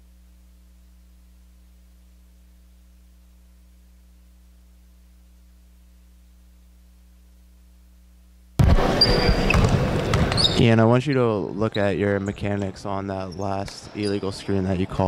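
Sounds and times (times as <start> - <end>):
faint low hum: 0.0 - 15.0
basketball game in gym: 8.6 - 15.0
shoe squeak: 8.9 - 9.7, 10.3 - 10.6, 13.3 - 14.5.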